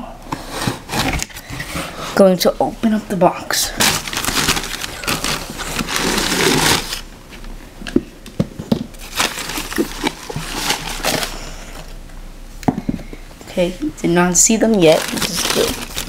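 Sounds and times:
tissue paper rustling and crinkling: 3.7 - 7.0, 9.0 - 11.6, 14.8 - 16.0.

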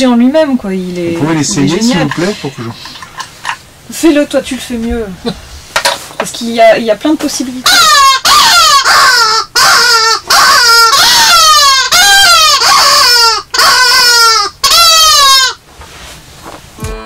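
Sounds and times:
bird-call whistle wailing cries: 7.7 - 15.6.

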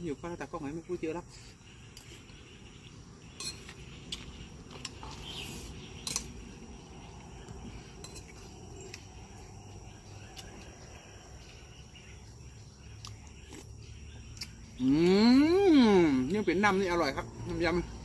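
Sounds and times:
high insect drone: 0.0 - 18.0
metal spoon clinking on a plate: 6.0 - 6.4, 8.0 - 8.4.

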